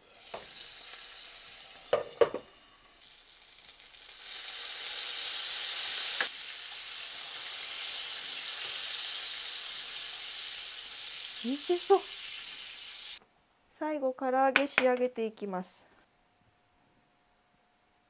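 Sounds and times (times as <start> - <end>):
food sizzling in a frying pan: 0.0 - 13.2
chopsticks tapping a pan: 1.9 - 2.5.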